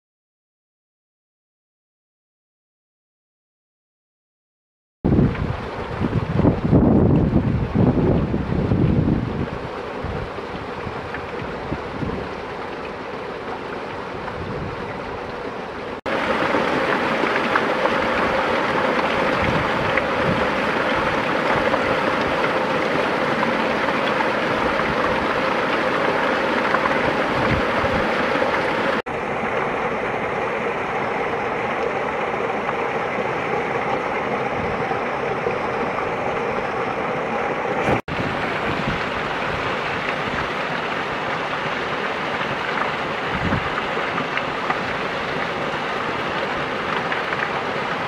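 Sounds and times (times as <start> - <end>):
small waterfall splashing over rock: 10.3 - 14.4, 16.1 - 29.6, 37.8 - 48.0.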